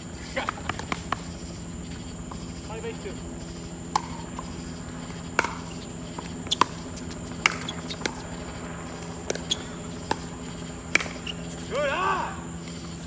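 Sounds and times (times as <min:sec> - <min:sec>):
steady high hum: 0:00.0 - 0:13.0
pickleball hits: 0:00.4 - 0:01.3, 0:03.8 - 0:12.8.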